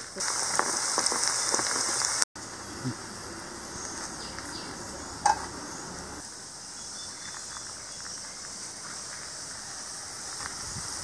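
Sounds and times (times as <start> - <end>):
food deep-frying in oil sizzling: 0.0 - 6.2.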